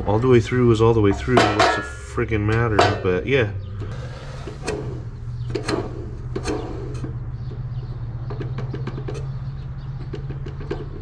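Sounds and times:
steady low hum: 0.0s - 10.0s.

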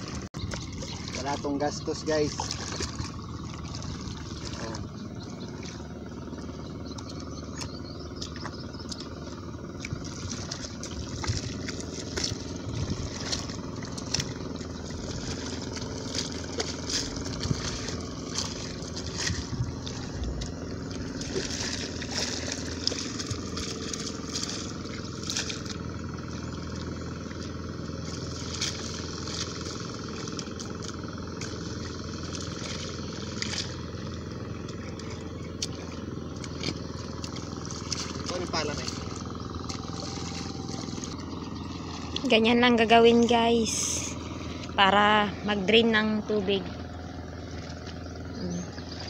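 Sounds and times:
tools scraping and splashing in mud: 0.0s - 45.1s, 46.5s - 49.0s
engine drone: 0.0s - 49.0s.

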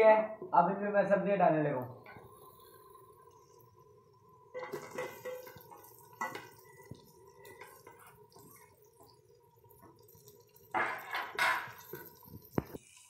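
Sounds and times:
metal spatula scraping pot: 4.6s - 6.8s.

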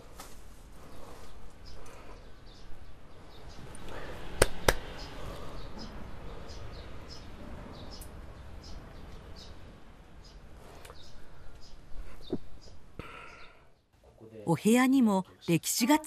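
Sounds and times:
small birds chirping: 0.7s - 16.0s
sharp hand claps: 4.4s - 4.9s.

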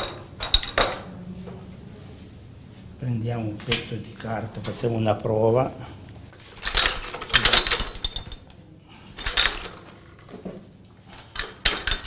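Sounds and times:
printing press metal clattering: 6.5s - 8.4s, 9.2s - 10.2s, 11.2s - 12.0s.

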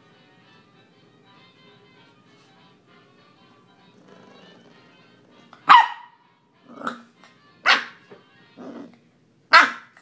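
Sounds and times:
puppy barking: 5.6s - 6.2s, 6.8s - 8.0s, 9.5s - 10.0s.

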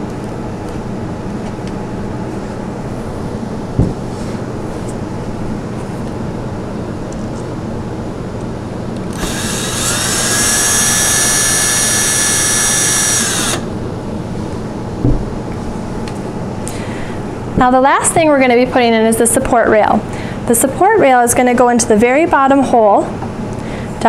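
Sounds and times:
cordless drill driving a screw: 9.1s - 13.7s.

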